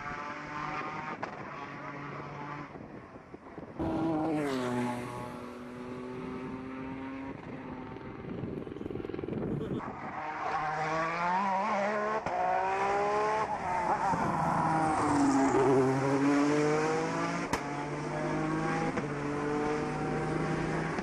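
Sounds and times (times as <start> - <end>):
race car engine accelerating: 3.8 - 21.0.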